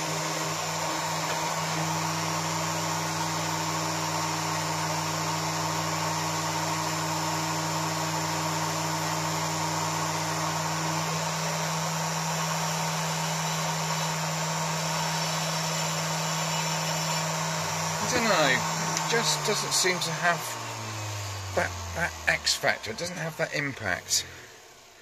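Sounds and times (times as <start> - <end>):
rotary tool grinding metal: 7.9 - 25.0.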